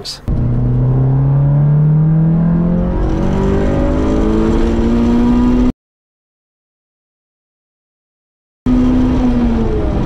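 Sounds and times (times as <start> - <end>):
car engine revving hard: 0.3 - 5.7.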